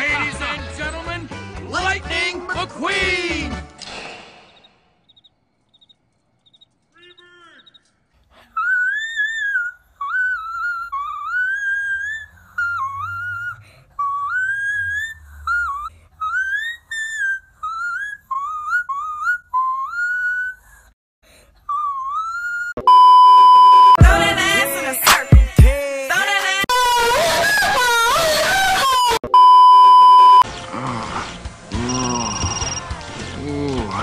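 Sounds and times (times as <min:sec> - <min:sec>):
loud beep tone: 0:22.8 - 0:24.0, 0:29.2 - 0:30.4, 0:31.9 - 0:32.9
loud music: 0:24.0 - 0:25.8.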